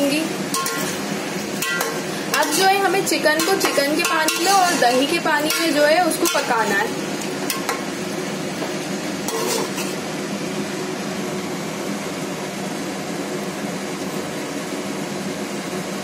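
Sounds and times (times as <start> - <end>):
metal spoon scraping pot: 1.6 - 6.7, 9.3 - 10.0.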